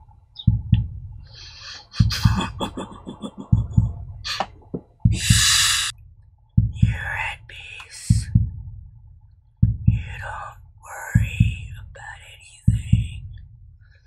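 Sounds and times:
mouth and breath noises: 1.2s - 5.9s
loud hiss: 1.3s - 2.4s, 5.1s - 5.9s.

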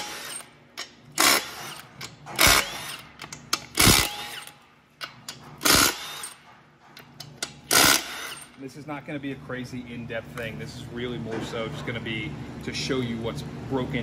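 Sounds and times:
power tool spinning bolts: 0.0s - 6.5s, 7.2s - 8.6s.

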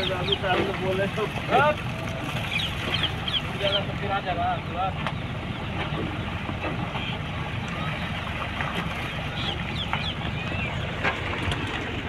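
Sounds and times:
truck engine humming: 0.0s - 12.0s
bird chirps: 2.4s - 3.9s, 9.1s - 10.9s.

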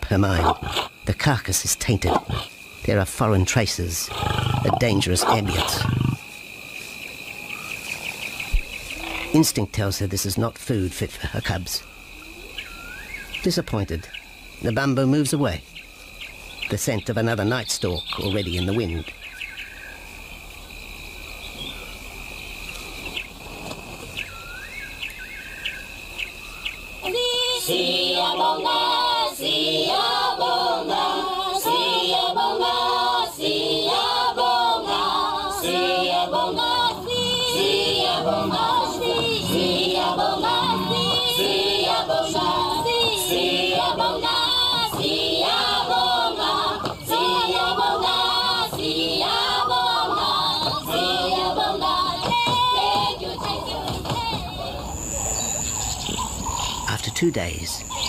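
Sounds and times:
high insect trill: 0.0s - 58.0s
choir singing: 27.0s - 55.6s.

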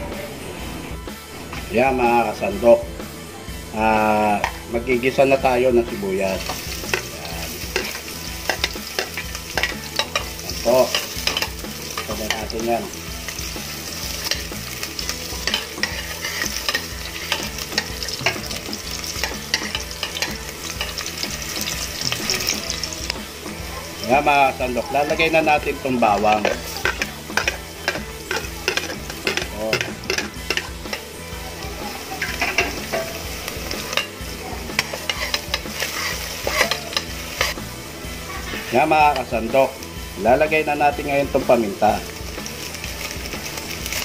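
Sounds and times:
onions sizzling in hot oil: 1.3s - 44.0s
spatula scraping a metal pot: 13.8s - 21.1s, 26.0s - 31.1s, 32.2s - 37.6s.

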